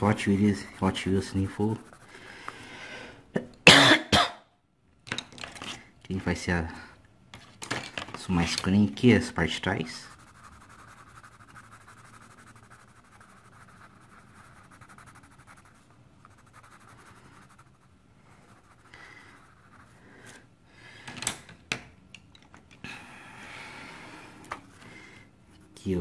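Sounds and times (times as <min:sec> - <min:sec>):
coloured pencil scratching on paper: 0:00.0 - 0:02.4, 0:09.2 - 0:20.5.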